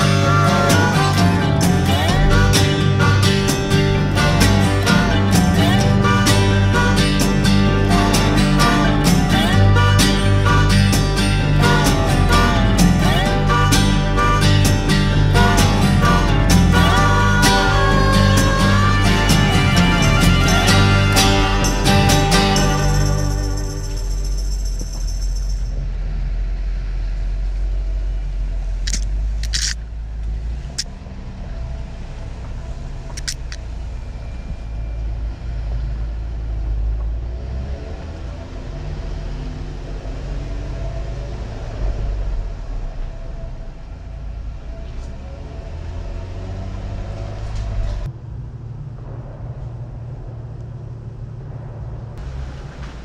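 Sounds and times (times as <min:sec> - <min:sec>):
truck engine rumbling: 0:00.0 - 0:53.0
sharp clicks: 0:28.9 - 0:29.8, 0:33.1 - 0:33.6.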